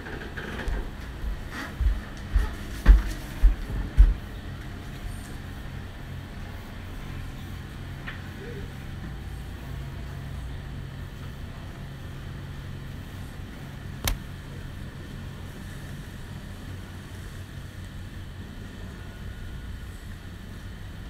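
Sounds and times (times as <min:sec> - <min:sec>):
wind: 0:00.0 - 0:21.0.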